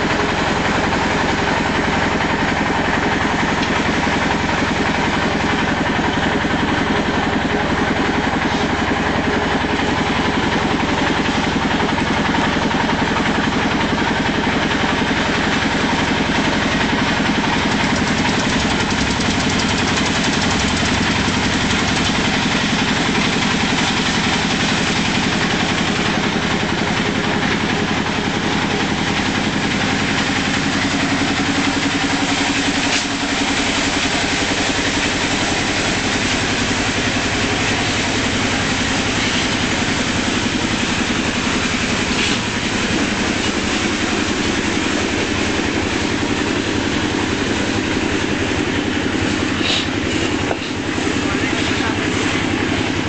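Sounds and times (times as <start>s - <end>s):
concrete mixer engine chugging: 0.0s - 53.0s.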